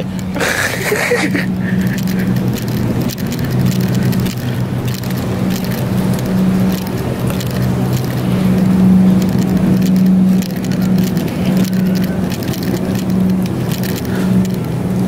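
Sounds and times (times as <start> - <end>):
faint clicks and rustles: 0.0 - 15.0
low hum: 0.0 - 15.0
ventilation rushing noise: 0.0 - 15.0.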